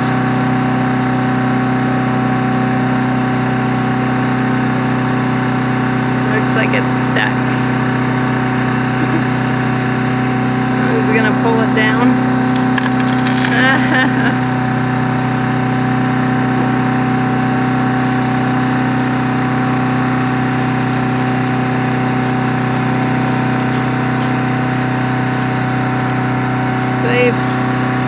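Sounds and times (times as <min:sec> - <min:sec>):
small engine idling: 0:00.0 - 0:28.0.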